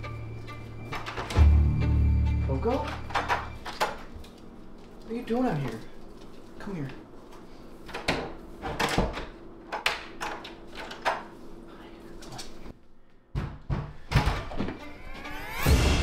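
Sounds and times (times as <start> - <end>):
low hum: 0.0 - 4.9.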